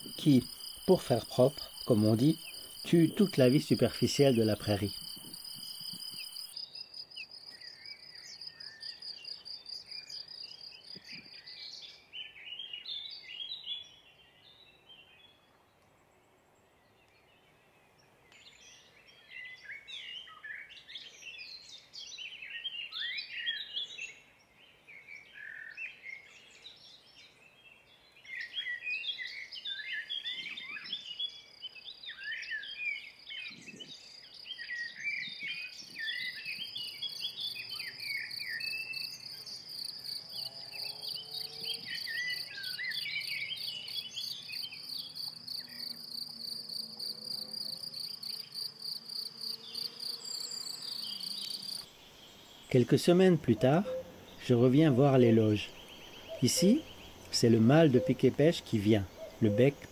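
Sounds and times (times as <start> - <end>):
high-pitched insect trill: 0.0 - 6.6, 36.9 - 51.9
crickets trilling: 0.0 - 7.4, 35.3 - 59.9
small birds chirping: 0.0 - 59.9.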